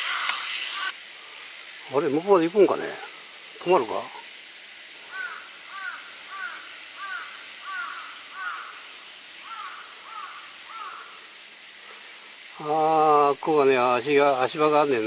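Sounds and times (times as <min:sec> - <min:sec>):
crow cawing: 0:00.0 - 0:01.0, 0:05.0 - 0:11.2
high-pitched insect drone: 0:00.0 - 0:15.0.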